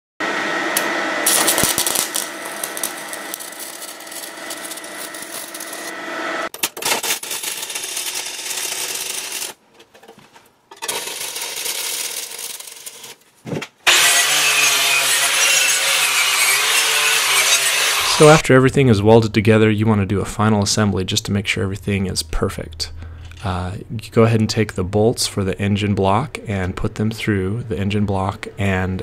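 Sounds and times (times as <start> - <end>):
arc welder crackling: 0.8 - 9.6, 10.8 - 18.4.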